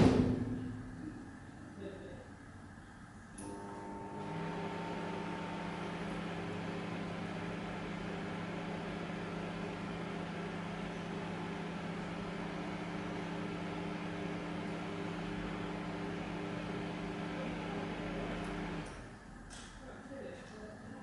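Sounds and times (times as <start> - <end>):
microwave oven humming: 3.1 - 19.2.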